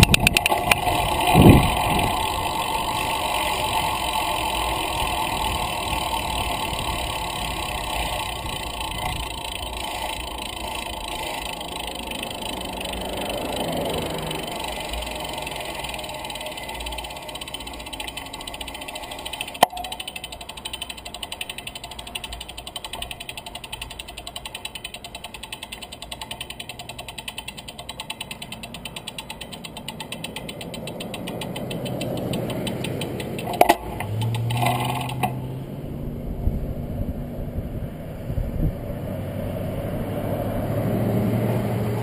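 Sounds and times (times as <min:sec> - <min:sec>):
wind buffeting microphone: 0:00.0 - 0:09.8, 0:35.9 - 0:40.8
tyre and road rumble: 0:00.0 - 0:42.0.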